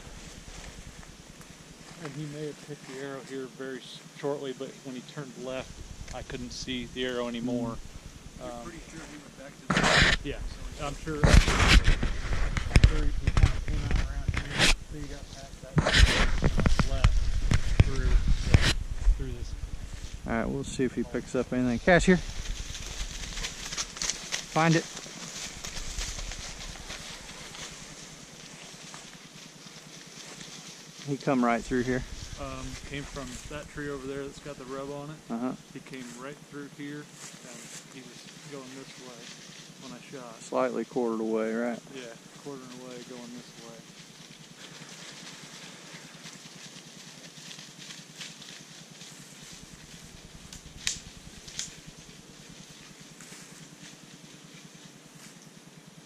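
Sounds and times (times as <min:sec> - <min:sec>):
footsteps crunching through dry leaves: 0:00.0 - 0:35.2, 0:35.9 - 0:40.6, 0:42.2 - 0:56.0
brush rustling: 0:00.0 - 0:56.0
sharp snaps: 0:50.3 - 0:52.0.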